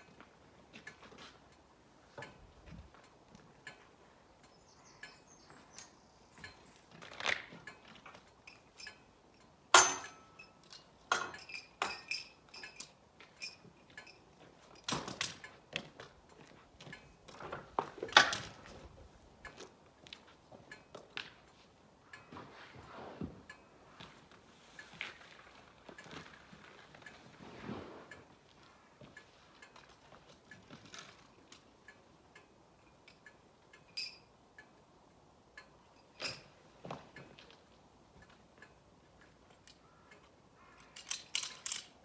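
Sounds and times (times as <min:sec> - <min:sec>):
metal clanks and clinks: 0:06.3 - 0:19.7, 0:32.8 - 0:34.3, 0:35.6 - 0:37.6, 0:39.5 - 0:42.0
sharp metal knocks: 0:09.7 - 0:12.4.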